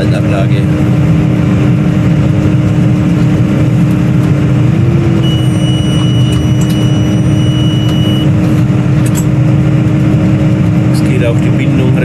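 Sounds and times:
tractor engine running: 0.0 - 12.0
thin high tone: 5.2 - 8.3.

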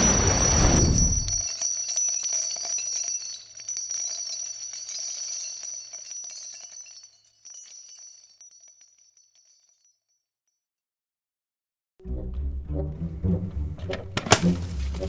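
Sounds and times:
shimmering jingle-like ringing: 0.0 - 10.3.

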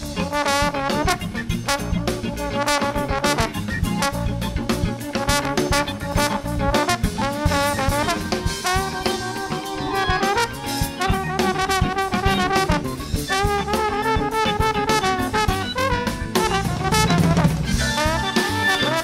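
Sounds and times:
drum kit groove: 0.0 - 19.0
saxophone and trombone riff: 0.0 - 19.0.

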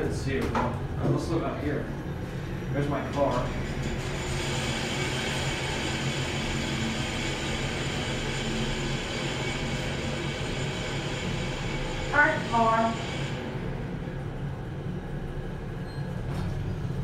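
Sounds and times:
elevator hum and rumble: 0.0 - 17.0
elevator ride hiss: 2.2 - 13.6.

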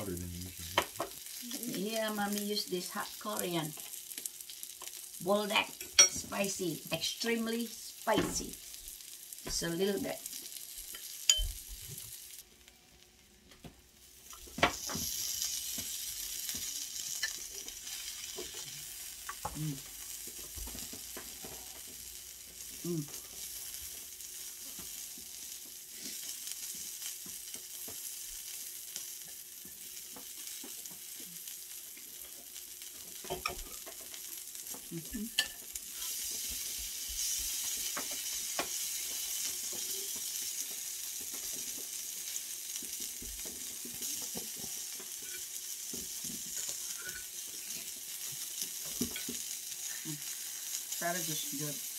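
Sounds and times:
meat sizzling on a hot stone grill: 0.0 - 51.9.

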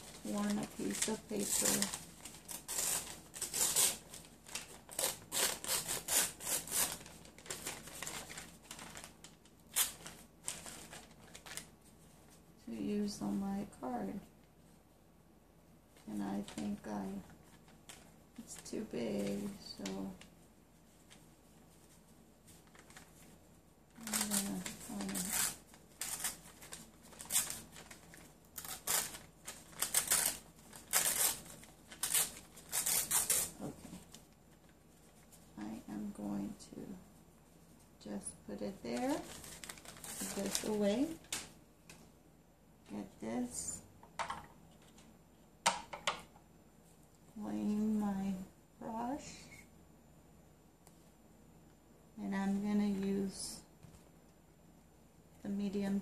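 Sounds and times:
paper rustling and rasping: 0.0 - 12.0, 17.4 - 23.4, 24.0 - 35.5, 38.7 - 41.5.

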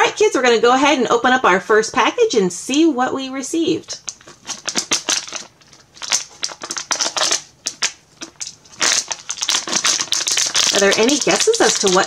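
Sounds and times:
foil packet crinkling: 4.0 - 12.0.

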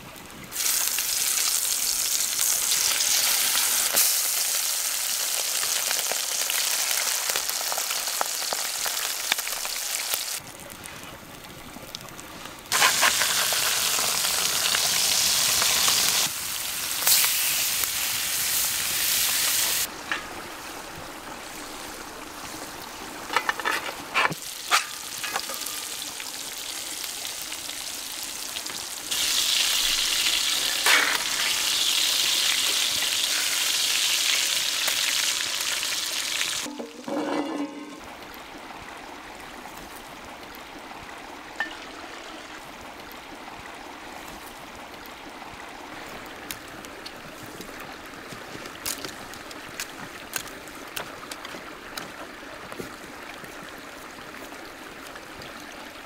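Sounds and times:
fish fillets sizzling in oil: 0.5 - 10.4, 12.7 - 20.8, 24.4 - 36.7.

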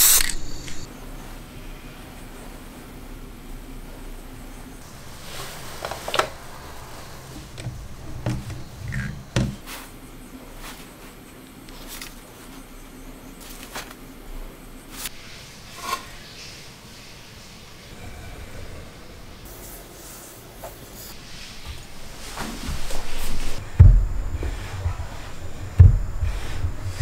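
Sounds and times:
clicks and knocks of wood and metal: 7.4 - 9.6.

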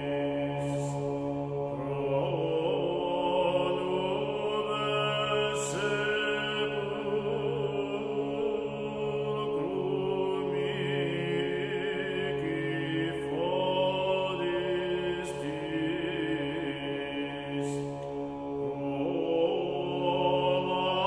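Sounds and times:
chant-like background music: 0.0 - 21.0.

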